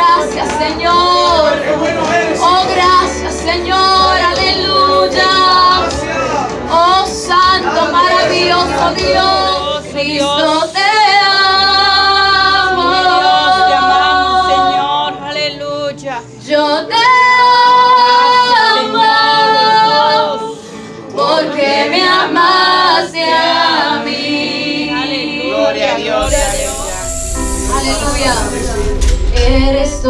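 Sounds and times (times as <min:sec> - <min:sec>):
woman singing into a microphone: 0:00.0 - 0:01.7, 0:02.3 - 0:05.9, 0:06.7 - 0:20.6, 0:27.6 - 0:30.0.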